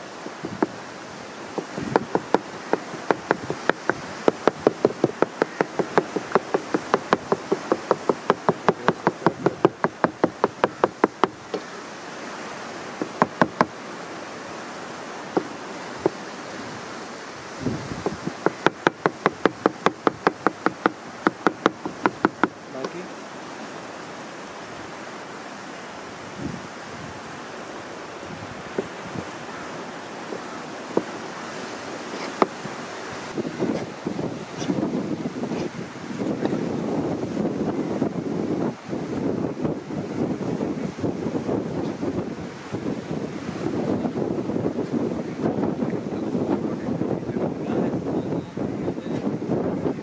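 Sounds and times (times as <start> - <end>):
knife chopping on plastic board: 1.6 - 11.7, 13.0 - 13.7, 18.0 - 23.0.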